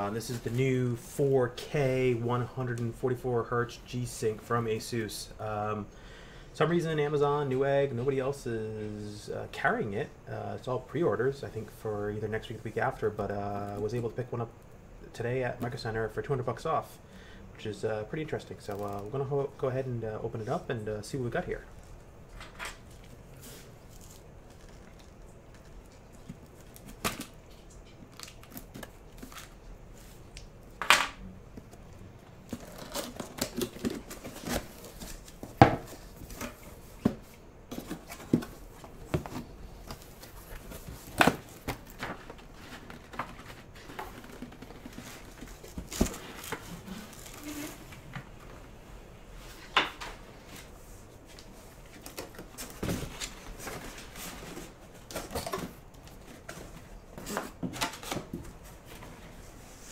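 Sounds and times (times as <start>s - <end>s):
cardboard rustling and scraping: 32.4s - 48.1s, 49.4s - 59.9s.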